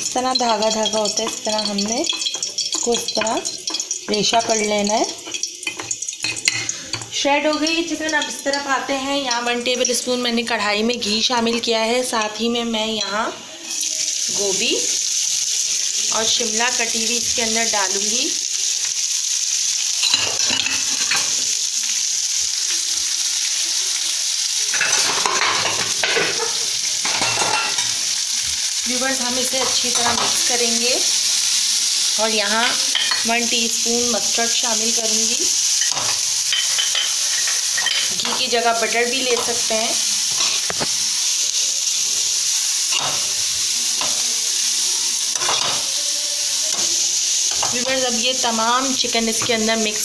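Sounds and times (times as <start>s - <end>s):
spoon scraping against pan: 0.0s - 10.2s, 24.7s - 32.0s, 32.6s - 33.4s, 34.2s - 48.4s
vegetables sizzling in hot oil: 0.0s - 50.0s.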